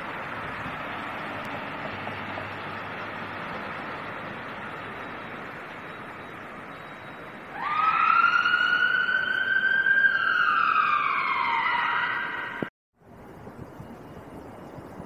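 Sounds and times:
traffic noise: 0.0s - 15.0s
siren wailing: 4.4s - 12.7s.

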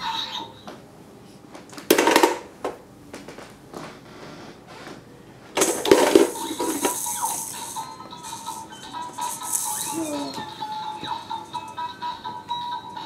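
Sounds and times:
plastic balls rattling in toy machine: 1.9s - 2.5s, 5.6s - 10.4s
toy electronic tune: 6.3s - 13.0s.

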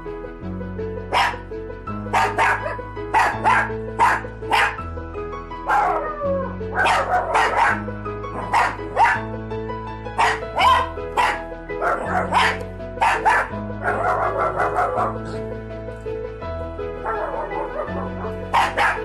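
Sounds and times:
background music with low notes: 0.0s - 19.0s
small dog barking: 1.1s - 1.4s, 2.1s - 4.8s, 5.6s - 6.1s, 6.7s - 9.2s, 10.2s - 15.2s, 17.0s - 19.0s.

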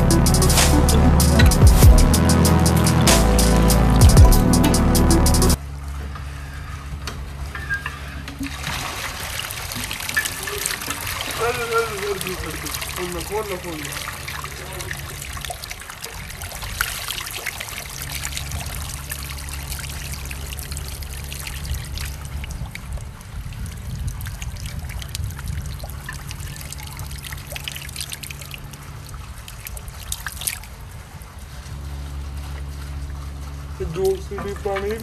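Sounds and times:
low steady hum: 0.0s - 35.0s
water trickling down wall: 7.4s - 35.0s.

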